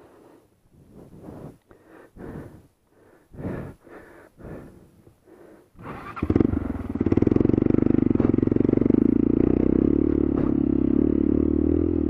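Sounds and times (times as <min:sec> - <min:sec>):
person breathing hard: 0:00.0 - 0:06.2
motorcycle engine running: 0:05.8 - 0:12.0.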